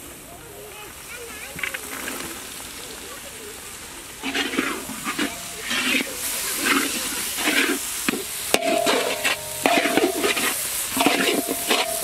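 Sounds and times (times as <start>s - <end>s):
frying sizzle: 0.0s - 12.0s
ladle clinking against pan: 4.2s - 12.0s
ladle scraping iron wok: 4.2s - 12.0s.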